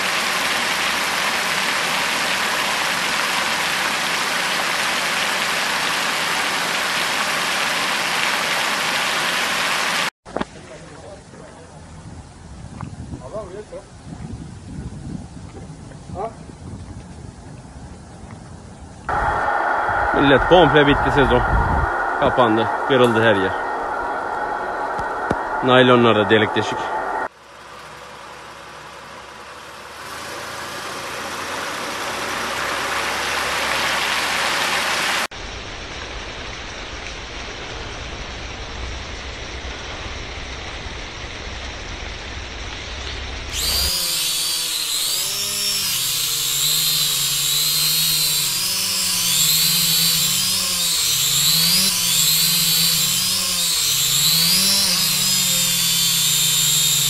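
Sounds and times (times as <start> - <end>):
low rumble: 18.8 - 27.3, 35.4 - 43.8
drone propellers whining: 19.1 - 27.3, 42.3 - 57.0
rushing noise: 19.1 - 27.4.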